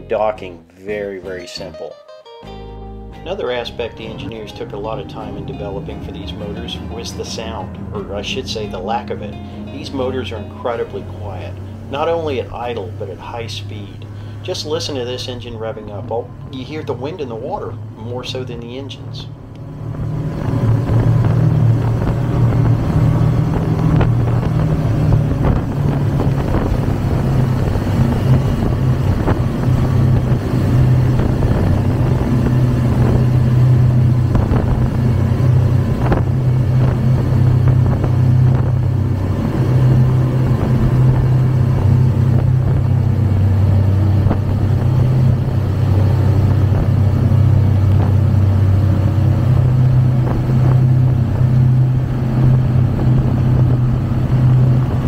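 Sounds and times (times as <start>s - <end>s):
boat engines humming: 2.5s - 55.0s
churning wake water: 3.4s - 55.0s
wind rushing: 19.4s - 55.0s.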